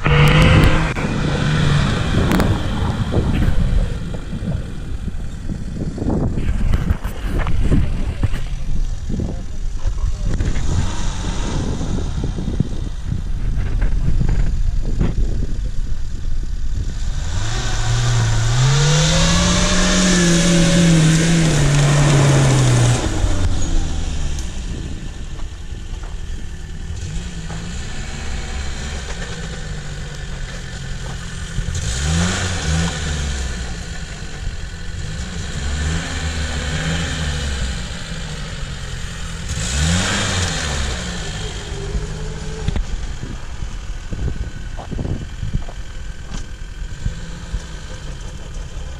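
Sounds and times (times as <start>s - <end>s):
car engine revving: 0.0s - 15.5s, 16.7s - 48.9s
tyres on dirt hissing: 17.2s - 24.9s.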